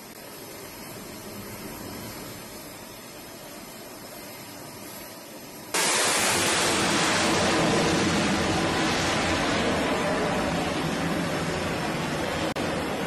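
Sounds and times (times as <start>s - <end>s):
faint hiss: 0.0s - 13.0s
jet engine roar: 5.7s - 13.0s.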